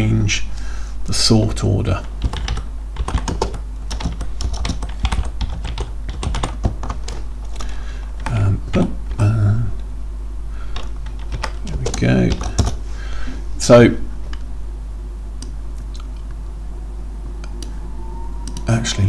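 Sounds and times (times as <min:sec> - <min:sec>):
computer keyboard typing: 0:02.0 - 0:07.6, 0:10.7 - 0:12.8.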